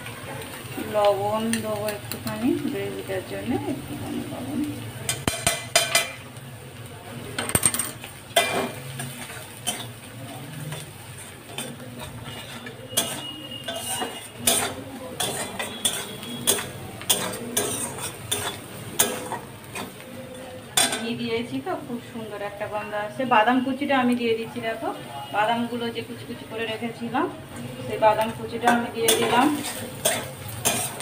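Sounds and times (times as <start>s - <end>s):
metal spatula scraping a wok: 8.4s - 20.0s, 28.4s - 31.0s.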